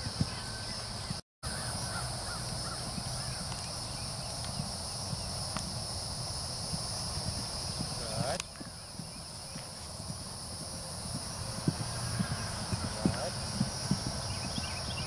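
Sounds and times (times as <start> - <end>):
horse hoofbeats on grass: 0.0 - 15.0
birds calling: 0.1 - 5.4, 11.0 - 15.0.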